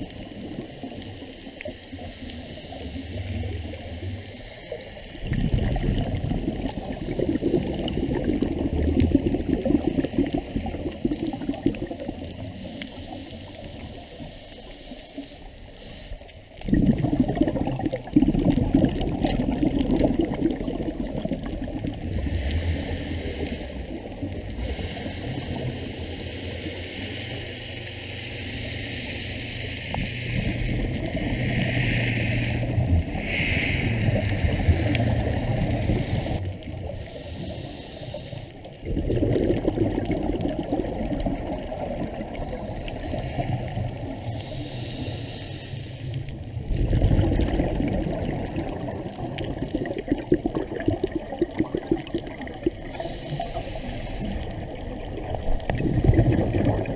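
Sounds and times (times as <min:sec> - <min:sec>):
underwater exhaled bubbles: 0:00.0 - 0:56.9
breaths through diving regulator: 0:31.5 - 0:35.2, 0:52.8 - 0:54.6.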